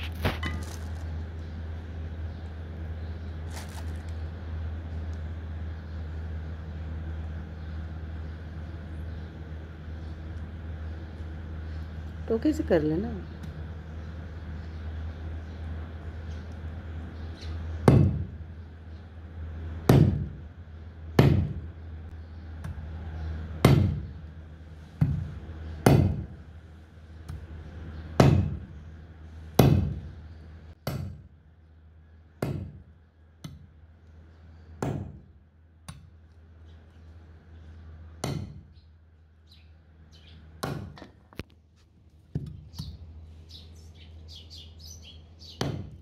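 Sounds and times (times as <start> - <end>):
cleaver chopping on wooden block: 17.8 - 18.3, 19.9 - 20.4, 21.2 - 21.6, 23.6 - 24.0, 25.0 - 26.3, 28.2 - 28.6, 30.8 - 31.2, 32.4 - 32.8, 34.8 - 35.2, 38.2 - 38.7, 40.6 - 41.0, 45.6 - 46.0.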